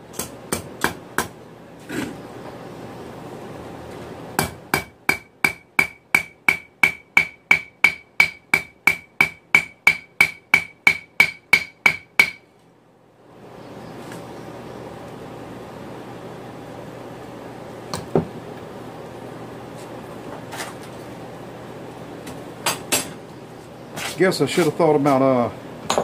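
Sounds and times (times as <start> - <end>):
hammer striking steel on anvil: 4.4 - 12.4.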